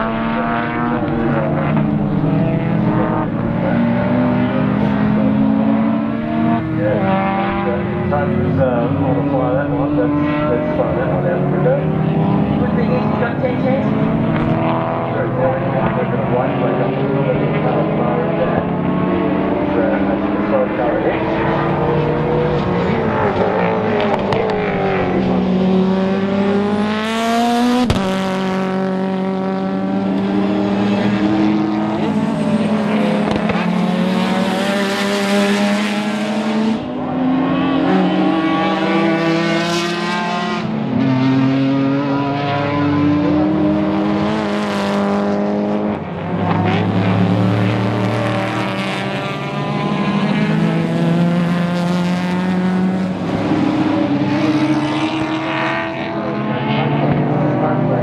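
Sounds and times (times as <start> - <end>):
race car engine at full throttle: 0.0 - 58.0.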